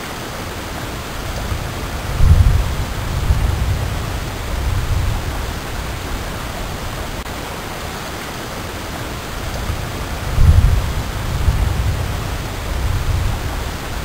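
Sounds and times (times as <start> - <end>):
steady hiss: 0.0 - 14.0
thunder rumbling: 0.9 - 7.2, 9.1 - 14.0.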